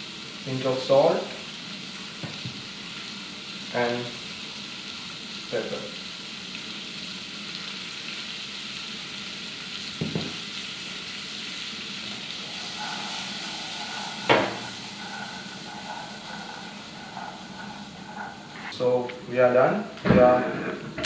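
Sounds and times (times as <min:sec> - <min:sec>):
vegetables sizzling in butter: 0:00.0 - 0:18.8
pan knocking: 0:12.3 - 0:18.6.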